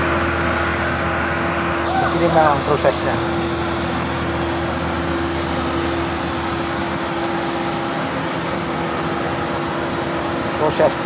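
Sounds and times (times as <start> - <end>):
air pump humming: 0.0 - 11.0.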